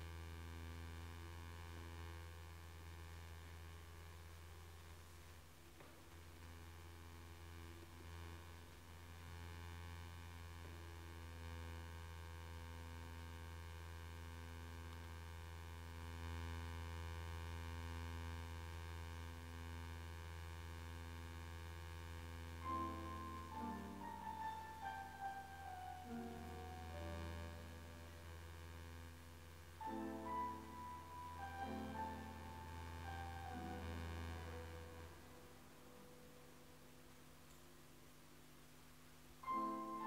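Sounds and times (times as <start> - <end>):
low hum: 0.0 - 40.0
held chord: 22.6 - 37.2, 39.4 - 40.0
descending piano notes: 29.8 - 36.8.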